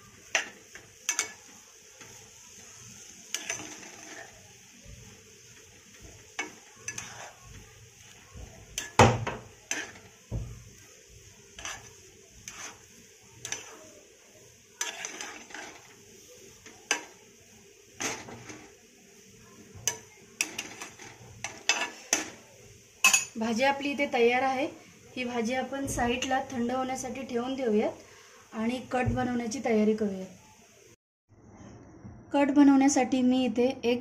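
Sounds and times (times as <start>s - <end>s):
spoon scraping a metal pan: 0.3s - 2.1s, 3.3s - 4.4s, 5.9s - 10.2s, 11.5s - 13.8s, 14.8s - 16.0s, 18.0s - 18.7s, 19.8s - 22.4s
loud knock on pan: 9.0s - 9.5s.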